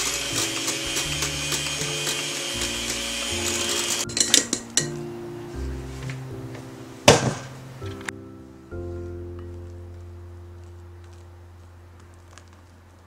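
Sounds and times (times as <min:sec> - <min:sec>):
electric hand mixer whirring: 0:00.0 - 0:04.1.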